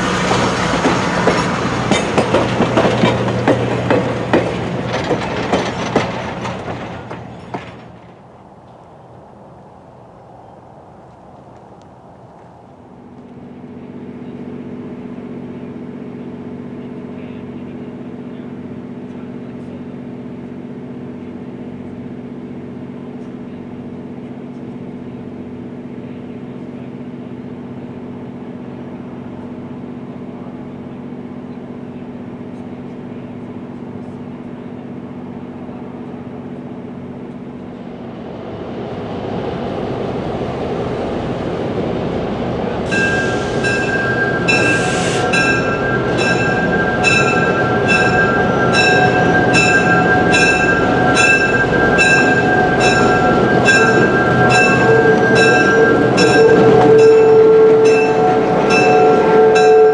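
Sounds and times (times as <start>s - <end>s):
diesel locomotive engine hum: 0.0s - 59.9s
locomotive bell ringing: 42.9s - 59.9s.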